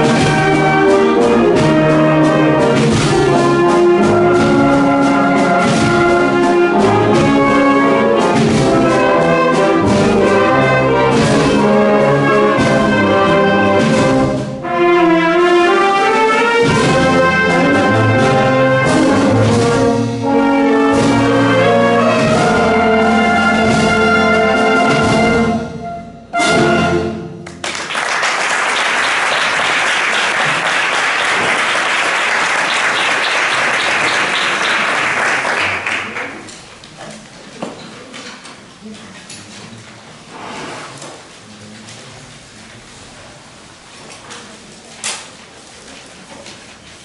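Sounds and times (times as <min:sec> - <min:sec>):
wind band playing: 0:00.0 - 0:36.3
audience applause: 0:27.4 - 0:36.6.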